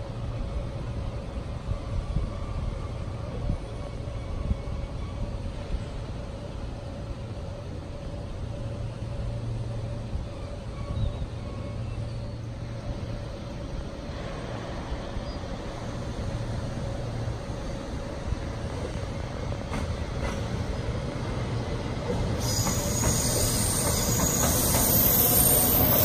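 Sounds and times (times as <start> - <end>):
city background hum and rumble: 0.0 - 26.0
electric train arriving with hiss: 14.0 - 26.0.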